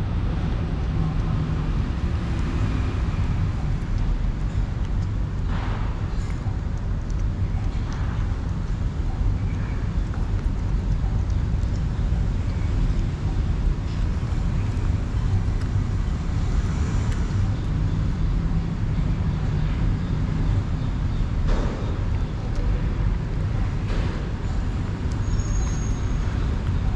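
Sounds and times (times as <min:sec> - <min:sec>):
traffic rumble: 0:00.0 - 0:26.9
cat chewing wet food: 0:00.4 - 0:19.4.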